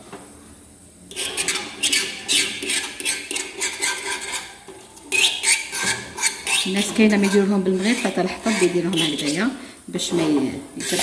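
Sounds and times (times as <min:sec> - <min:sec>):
rasping scrapes on copper tray: 0:01.1 - 0:09.5, 0:10.8 - 0:11.0.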